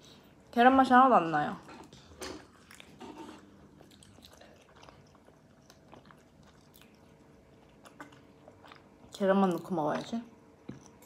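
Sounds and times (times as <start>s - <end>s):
person chewing sandwich: 1.8s - 9.1s.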